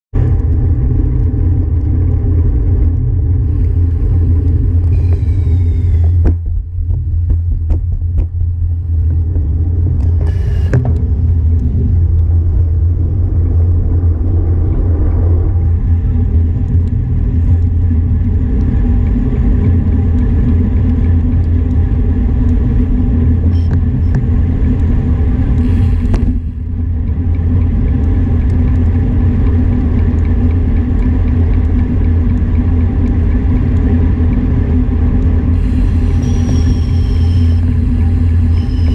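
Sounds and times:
tyre noise on asphalt: 0.2 - 13.0
wind buffeting microphone: 0.2 - 38.9.

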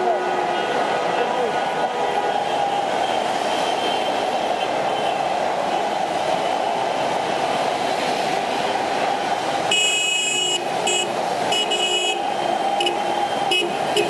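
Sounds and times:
heavy traffic on wet road: 0.0 - 14.0
car horns blasting: 9.7 - 14.0.

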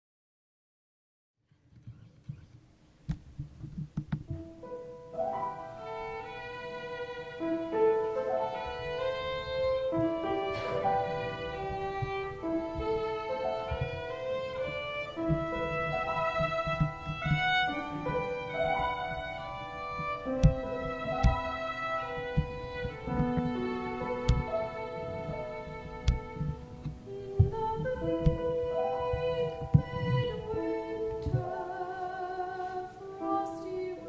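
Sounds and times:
low tapping: 1.7 - 4.8, 5.9 - 32.0
solo violin melody: 4.3 - 34.0
sharp clicks: 19.9 - 24.6, 25.8 - 28.4.

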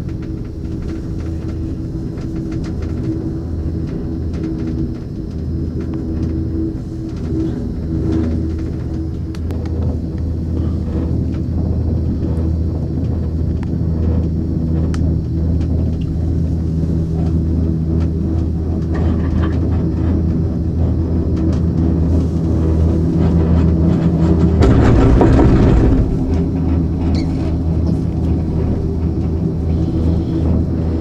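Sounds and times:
gondola cabin rumbling: 0.0 - 31.0
cable car grip rolling over sheaves: 22.0 - 30.8.

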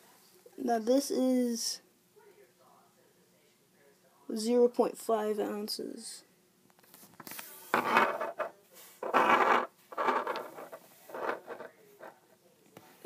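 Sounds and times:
objects rustling and rubbing: 6.8 - 12.4.

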